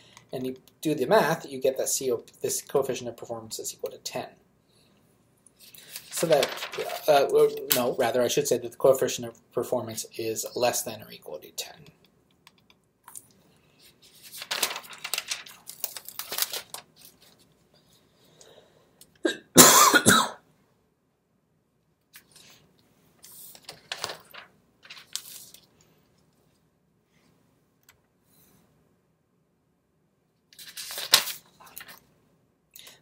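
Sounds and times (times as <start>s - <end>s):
man coughing: 19.2s - 20.4s.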